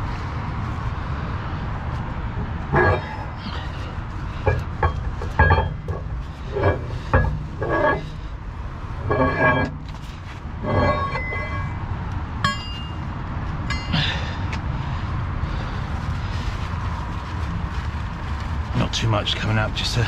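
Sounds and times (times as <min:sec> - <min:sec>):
low rumble of heavy engine: 0:00.0 - 0:20.0
tools knocking and clanking: 0:04.4 - 0:08.1, 0:12.4 - 0:13.0.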